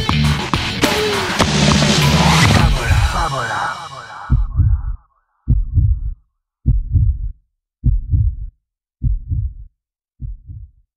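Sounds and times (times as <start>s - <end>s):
music: 0.0s - 4.7s
heartbeat double thump: 4.2s - 9.6s, 10.2s - 10.8s.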